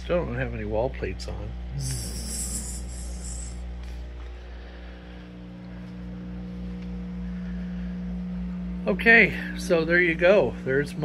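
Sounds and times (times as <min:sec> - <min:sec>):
electrical hum: 0:00.0 - 0:11.0
high hiss: 0:01.8 - 0:03.6.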